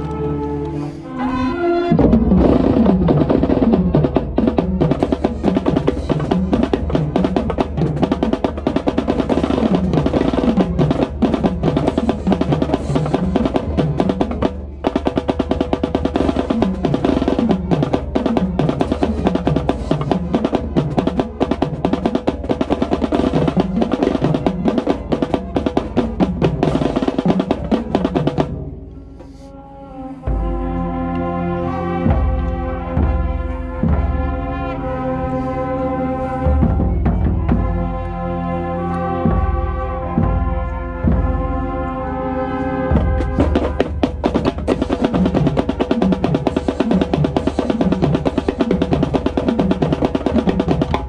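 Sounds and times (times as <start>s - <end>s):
snare drum strokes: 1.9s - 28.6s, 42.9s - 51.0s
lower drums runs: 42.9s - 51.0s.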